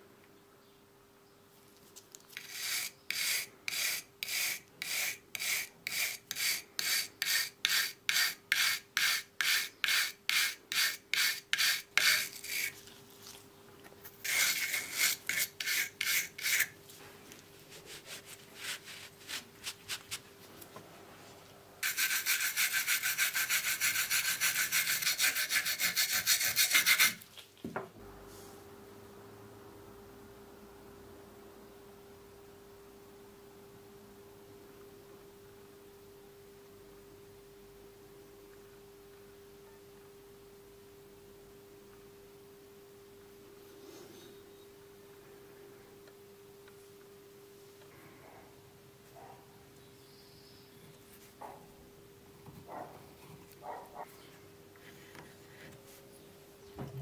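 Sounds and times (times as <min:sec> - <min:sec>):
wire brush scrubbing metal: 0:21.8 - 0:27.2.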